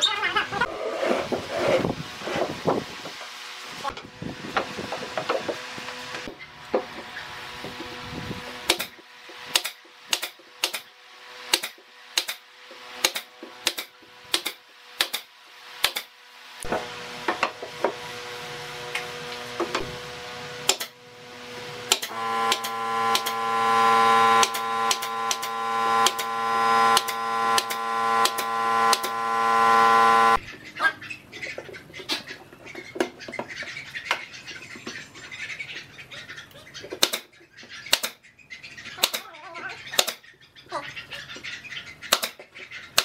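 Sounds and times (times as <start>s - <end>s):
pneumatic nail gun firing into wood: 8.6s - 12.4s, 13.0s - 17.5s, 20.6s - 21.0s, 21.8s - 30.4s
steady hum: 16.6s - 30.4s.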